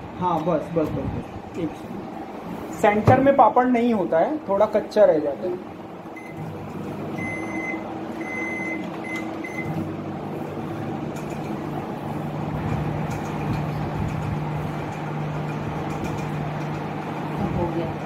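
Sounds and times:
microwave oven humming: 0.0 - 18.0
microwave keypad beeping: 6.2 - 9.9.

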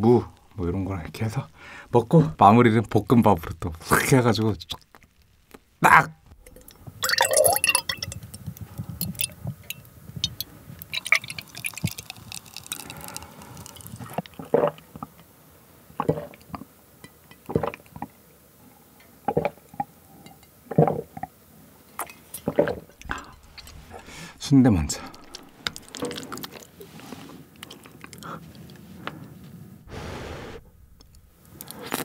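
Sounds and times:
person gulping: 6.4 - 9.3, 10.2 - 14.8, 22.0 - 26.7
drink pouring into glass mug: 6.5 - 14.4, 24.9 - 26.7.

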